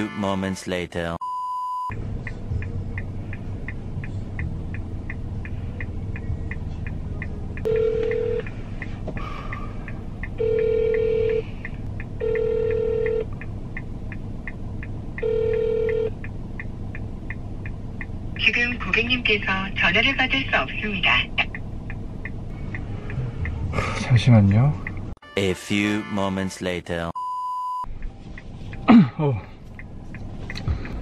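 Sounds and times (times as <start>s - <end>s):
low hum: 1.8s - 25.2s
phone ringback tones: 7.7s - 8.5s, 10.4s - 11.5s, 12.2s - 13.3s, 15.2s - 16.1s.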